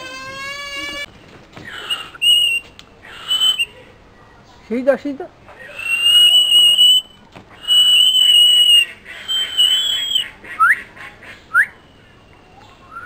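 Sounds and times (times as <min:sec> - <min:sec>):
myna whistling: 0:01.7 - 0:03.8, 0:05.6 - 0:10.8, 0:11.5 - 0:11.8.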